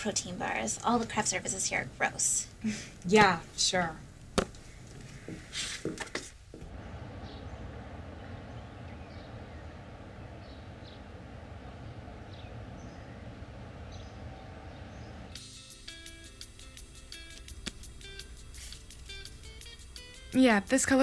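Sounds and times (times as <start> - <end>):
low street rumble: 6.4 - 15.4
faint bird chirps: 6.7 - 15.4.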